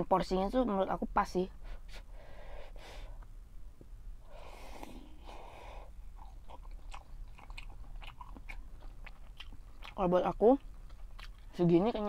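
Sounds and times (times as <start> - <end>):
wet chewing clicks: 6.2 - 12.0.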